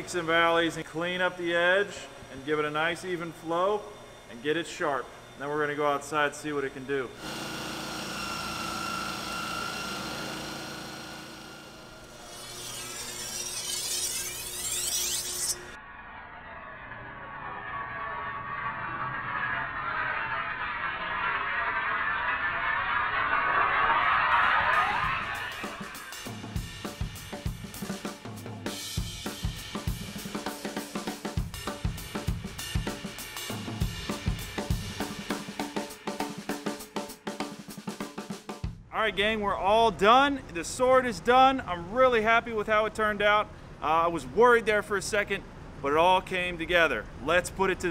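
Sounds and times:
bench grinder whining: 6.7 - 15.8
metal grinding on wheel: 12.0 - 15.8
music with drum-kit beat: 24.7 - 38.9.

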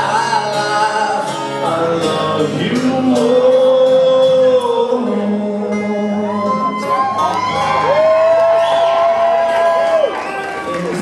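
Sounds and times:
audience cheering and whooping: 6.3 - 11.0.

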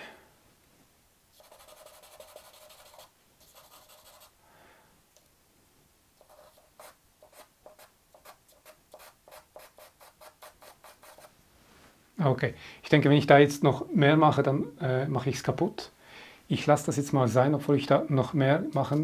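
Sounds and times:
charcoal scratching on paper: 1.4 - 4.3, 6.2 - 11.3.

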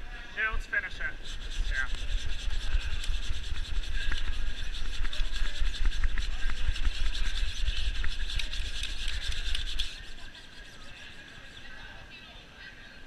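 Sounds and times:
brooms sweeping on ice: 0.6 - 11.9
curling stone rumbling: 1.0 - 11.8.

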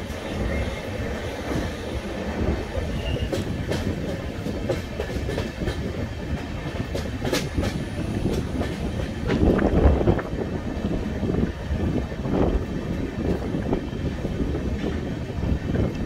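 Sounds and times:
train wheels rumbling on rails: 0.0 - 16.0
high wheel squeal: 2.8 - 3.4.

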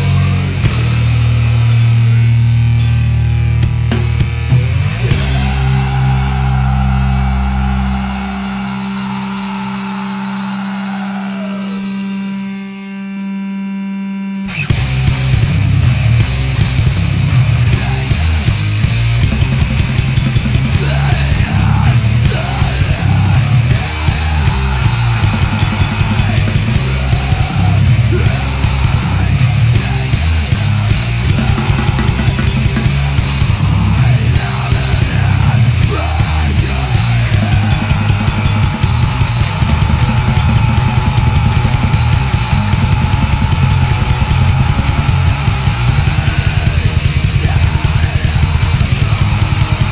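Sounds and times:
fast dense drumming: 0.0 - 1.9, 2.8 - 12.0, 14.7 - 49.9
distorted guitars and bass: 0.0 - 49.9.

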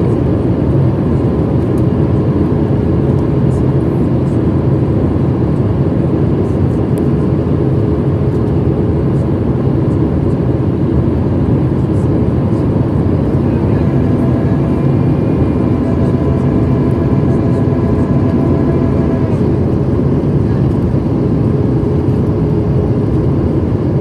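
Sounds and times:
jet engine drone in cabin: 0.0 - 24.0
rushing airflow: 12.6 - 22.3
faint steady tones: 13.2 - 19.8.

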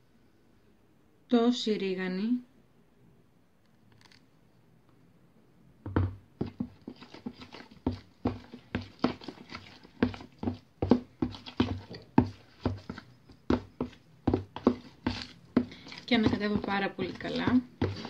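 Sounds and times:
metal spoon stirring dough in bowl: 6.4 - 18.0.

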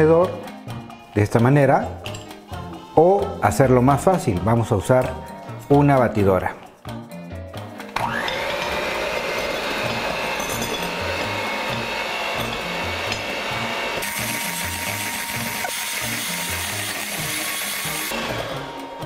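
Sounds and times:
hand mixer whining: 7.9 - 19.0.

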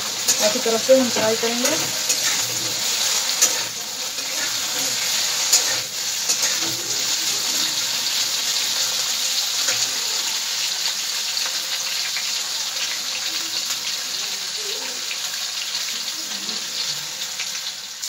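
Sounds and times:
vegetables sizzling in hot oil: 0.0 - 18.0
metal spatula clicking on pan: 3.4 - 3.8, 5.4 - 6.7.

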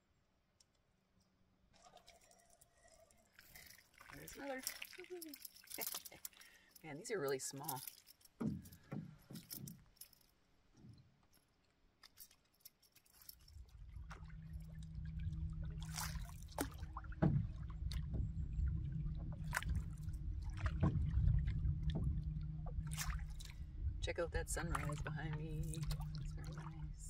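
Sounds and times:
water splashing and sloshing: 1.7 - 27.0
low steady rumble: 13.4 - 27.0.

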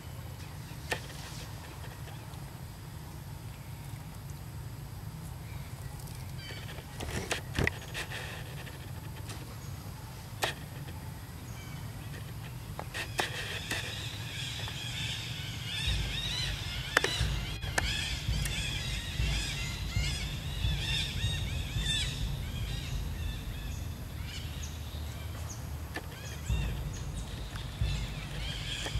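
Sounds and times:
small birds chirping: 5.4 - 28.9
wind rumble on microphone: 5.6 - 28.9
sharp clicks: 15.8 - 22.8.

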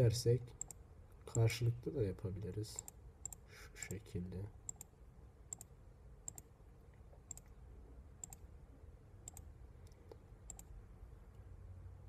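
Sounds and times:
low room hum: 0.0 - 12.0
computer mouse clicking: 0.6 - 1.5, 2.8 - 4.0, 4.7 - 4.9, 5.5 - 5.7, 6.3 - 6.5, 7.3 - 7.6, 8.2 - 8.5, 9.2 - 10.8.

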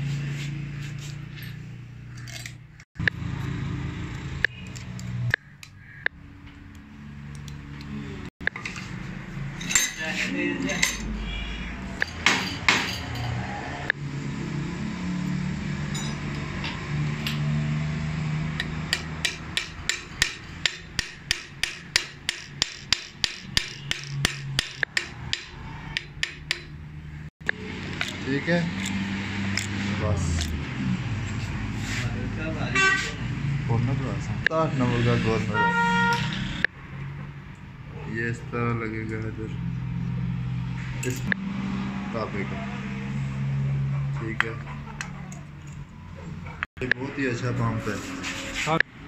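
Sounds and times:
tools knocking on metal parts: 12.0 - 13.4, 18.6 - 26.8.

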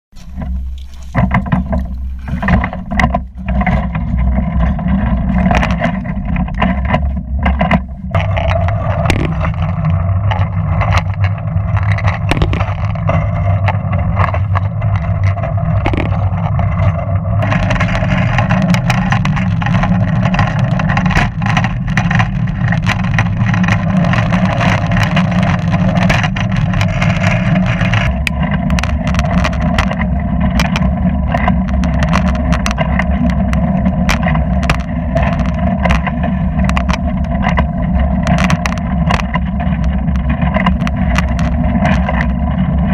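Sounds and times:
sharp clicks and knocks: 0.1 - 42.9
wheels rumbling on rails: 0.1 - 42.9.

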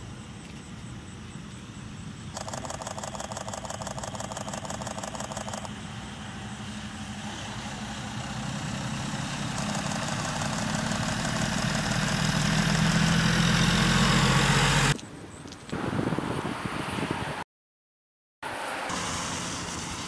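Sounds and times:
truck engine and tyres approaching: 0.0 - 15.0, 18.4 - 20.0.

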